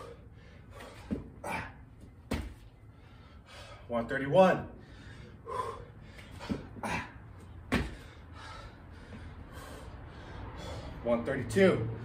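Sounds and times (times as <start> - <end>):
man breathing hard: 0.0 - 2.1, 2.8 - 4.0, 4.6 - 11.1
body thumping on concrete: 1.0 - 1.4, 2.0 - 2.7, 6.4 - 7.0, 7.6 - 8.1.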